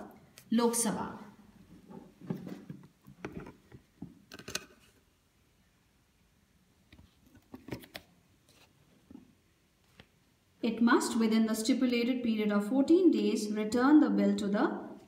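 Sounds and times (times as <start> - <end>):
book pages turning: 7.1 - 8.9.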